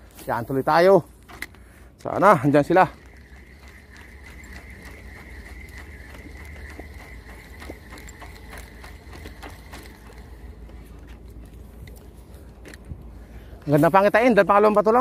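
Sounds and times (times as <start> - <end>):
thin steady whine: 0.0 - 15.0
fishing reel clicking: 1.3 - 12.8.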